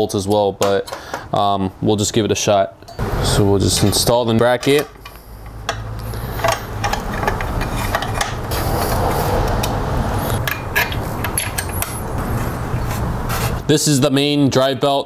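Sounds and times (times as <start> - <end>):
steady low hum: 2.9 - 13.7
metal tools clinking and knocking: 3.7 - 8.4, 10.4 - 12.1.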